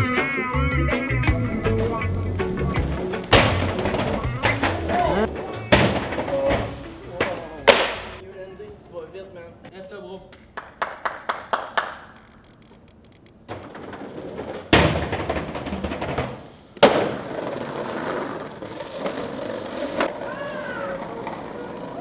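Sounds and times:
skateboard wheels rolling: 0:00.0 - 0:08.2, 0:13.4 - 0:22.0
skateboard landing: 0:01.3 - 0:08.2, 0:13.5 - 0:22.0.

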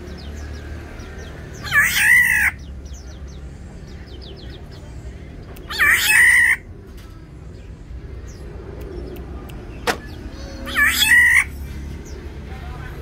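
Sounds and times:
bird giving harsh calls: 0:01.5 - 0:03.1, 0:05.7 - 0:06.7, 0:09.9 - 0:11.7.

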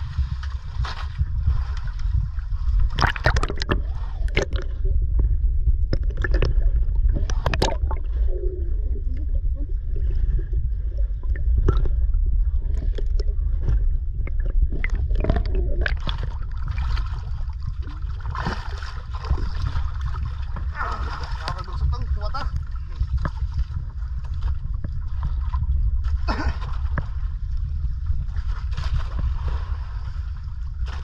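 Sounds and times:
underwater rumble of water: 0:00.0 - 0:31.0
sharp clicks and pops: 0:03.0 - 0:04.7, 0:05.8 - 0:08.0, 0:11.3 - 0:12.0.

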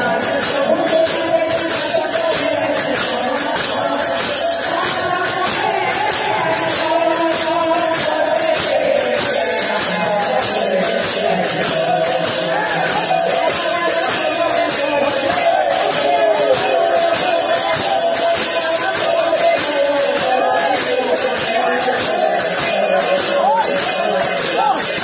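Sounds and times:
person singing devotional melody: 0:00.0 - 0:25.0.

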